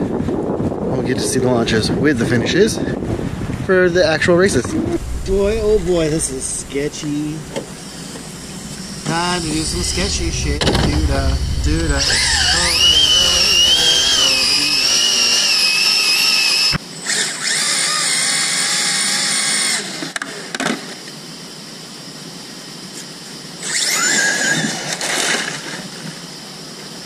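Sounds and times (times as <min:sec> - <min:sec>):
high-pitched electric motor whine: 0:04.9 - 0:20.2, 0:23.6 - 0:24.4.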